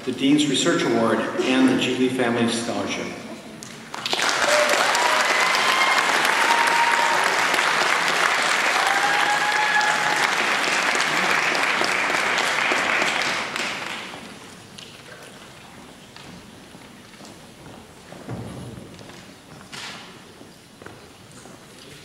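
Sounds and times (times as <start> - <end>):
audience applauding: 3.6 - 14.4
audience cheering: 4.2 - 13.0.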